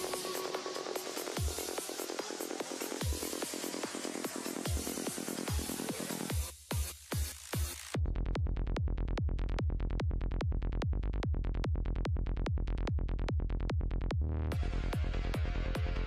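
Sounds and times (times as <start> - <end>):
electronic dance music: 0.0 - 7.9.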